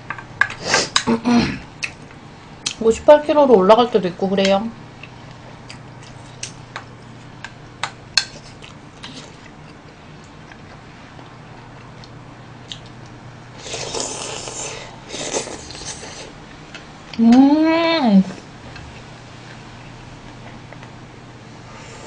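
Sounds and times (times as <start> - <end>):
steady low hum: 0.0 - 22.0
person slurping: 13.6 - 16.3.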